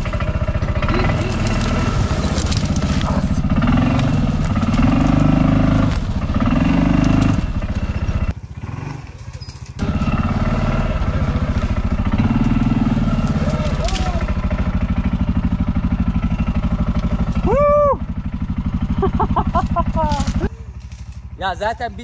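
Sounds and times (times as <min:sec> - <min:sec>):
engine running under load: 0:00.0 - 0:22.0.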